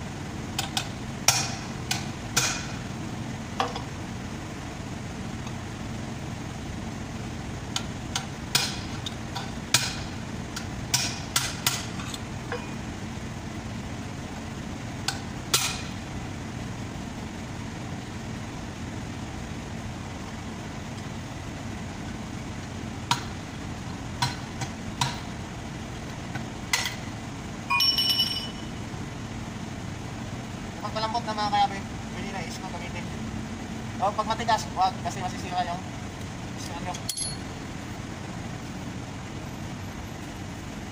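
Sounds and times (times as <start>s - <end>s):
steady low hum: 0.0s - 40.9s
hammer striking chisel on metal: 0.6s - 2.7s, 10.9s - 11.9s
pliers clattering down: 37.0s - 37.4s.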